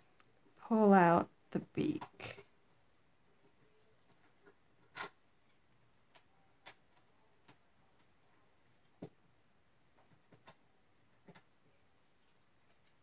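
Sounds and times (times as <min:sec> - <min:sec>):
fingers clicking and tapping clay: 0:04.0 - 0:09.2, 0:09.9 - 0:11.7.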